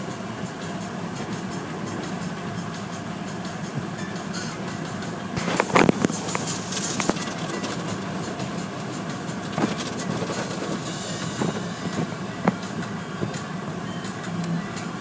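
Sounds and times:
machinery hum: 0:00.0 - 0:15.0
spraying water hiss: 0:00.0 - 0:15.0
wash strips swishing and slapping: 0:03.5 - 0:13.5.

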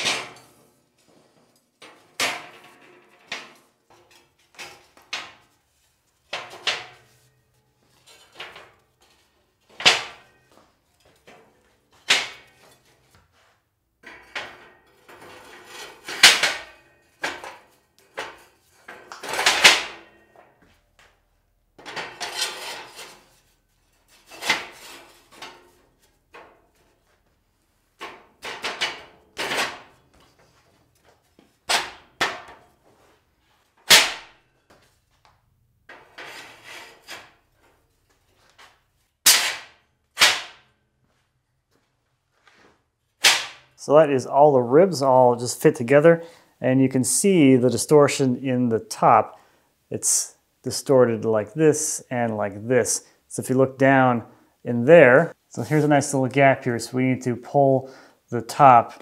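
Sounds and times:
steel plate scraping: 0:14.0 - 0:20.2, 0:21.8 - 0:26.9, 0:35.9 - 0:37.5.

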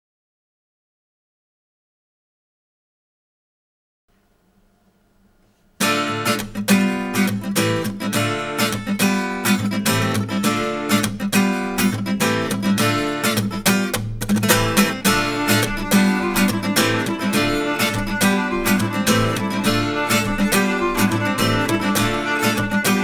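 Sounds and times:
acoustic guitar dance tune: 0:05.4 - 0:23.0.

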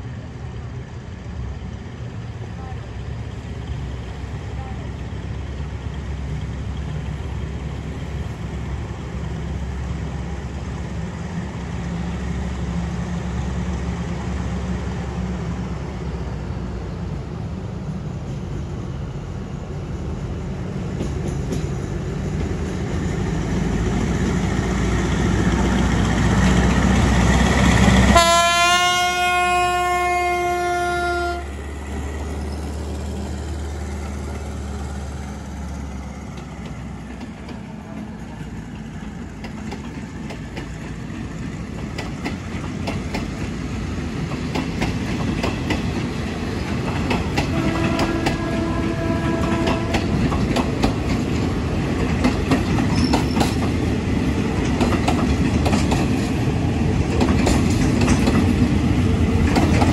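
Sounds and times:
train rumbling past: 0:00.0 - 0:59.9
train horn: 0:28.1 - 0:31.5, 0:47.4 - 0:50.2.

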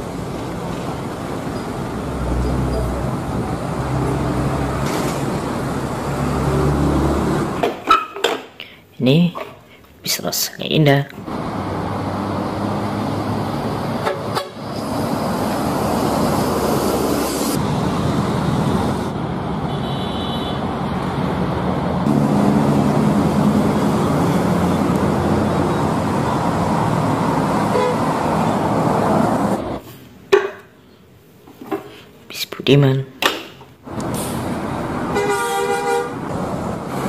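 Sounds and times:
buses driving past: 0:00.0 - 0:07.9, 0:11.2 - 0:31.3, 0:33.5 - 0:37.0
traffic noise: 0:00.0 - 0:37.0
vehicle horns sounding: 0:14.0 - 0:14.7, 0:19.7 - 0:20.7, 0:27.7 - 0:28.2, 0:35.1 - 0:36.2.

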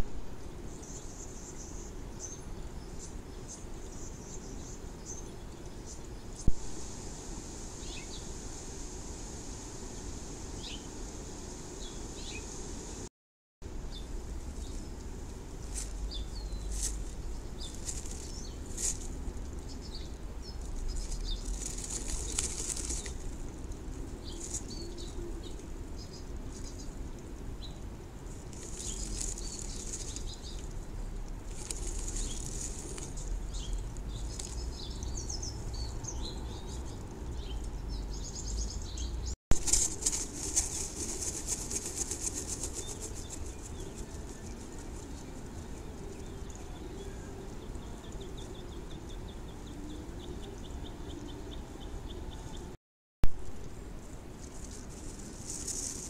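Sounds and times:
bird rustling in nest: 0:15.6 - 0:19.2, 0:20.6 - 0:24.7, 0:31.4 - 0:33.2, 0:39.6 - 0:43.6, 0:54.4 - 0:56.0.

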